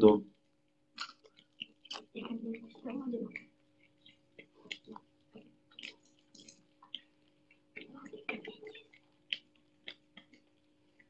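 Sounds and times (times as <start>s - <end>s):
otter chewing wet crunches: 0.9s - 11.0s.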